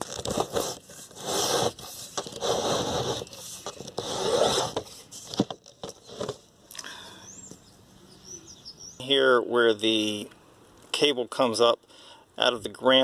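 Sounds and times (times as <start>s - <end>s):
rod scraping in a hole: 0.0s - 6.4s.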